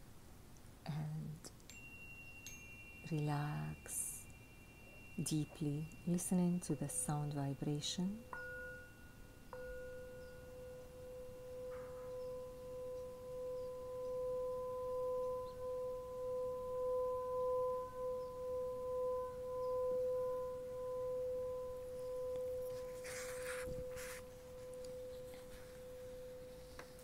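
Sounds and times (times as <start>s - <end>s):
sustained ringing tone: 1.7s - 27.0s.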